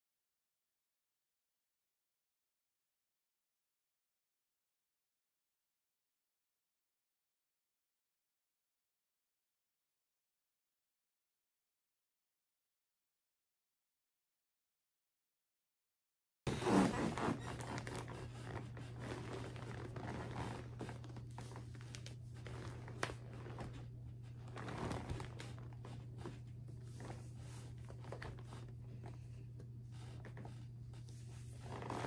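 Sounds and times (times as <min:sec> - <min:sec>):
rustling plastic packaging and fabric: 0:16.5 - 0:29.2, 0:30.0 - 0:32.0
steady low hum: 0:16.5 - 0:32.0.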